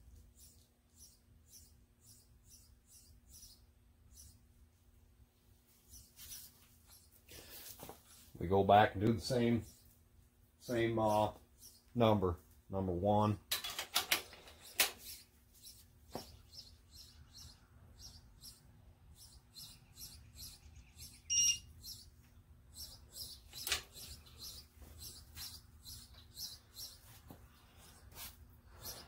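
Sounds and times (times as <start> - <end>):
small bird chirping: 0.0 - 4.6, 5.7 - 8.4, 9.3 - 10.0, 10.6 - 12.2, 14.5 - 29.0
whistled bird call: 21.2 - 21.7.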